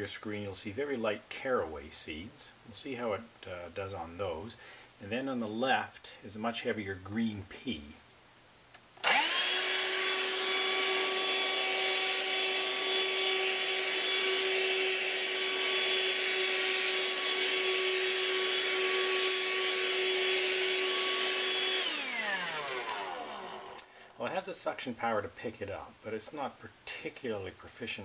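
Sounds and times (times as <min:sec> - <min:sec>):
hand vacuum whining: 0:09.0 - 0:23.9
motor winding down: 0:09.0 - 0:23.9.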